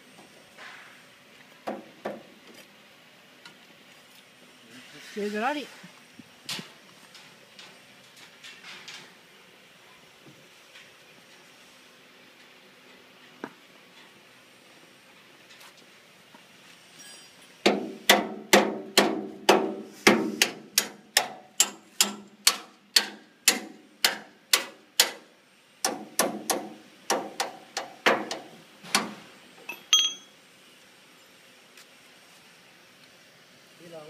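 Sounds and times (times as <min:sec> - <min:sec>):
hammer striking metal: 0:17.7 - 0:25.2, 0:29.7 - 0:30.3
light metallic clink: 0:29.7 - 0:30.4.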